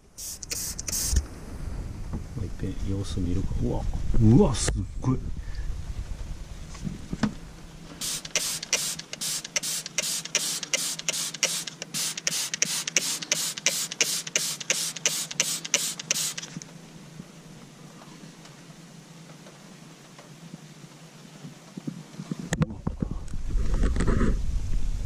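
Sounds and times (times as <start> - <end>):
spray bottle short hissing sprays: 0.0 - 1.2, 8.0 - 16.6.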